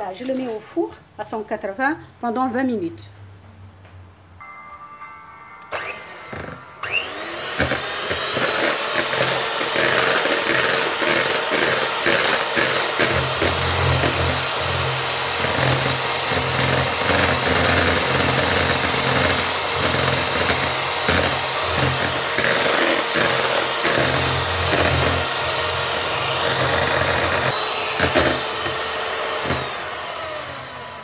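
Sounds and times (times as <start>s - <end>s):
electric hand mixer whipping cream: 5.7s - 31.0s.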